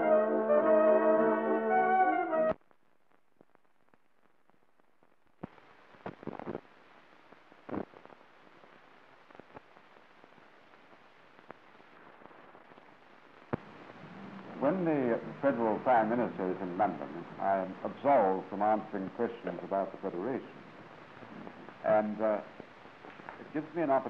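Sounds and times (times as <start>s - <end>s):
brass fanfare: 0.0s - 2.5s
film soundtrack crackle: 0.0s - 24.0s
steady hiss with sharp pops: 2.5s - 24.0s.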